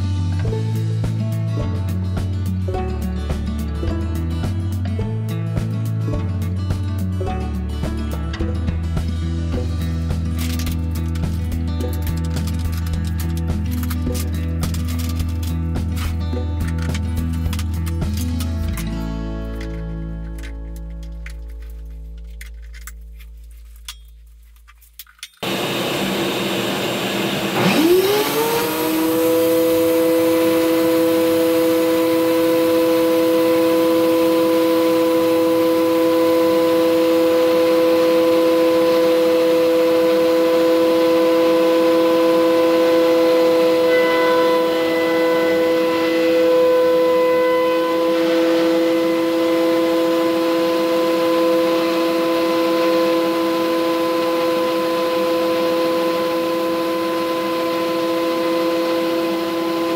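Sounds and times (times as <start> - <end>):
power tool motor whining: 25.4 - 59.9.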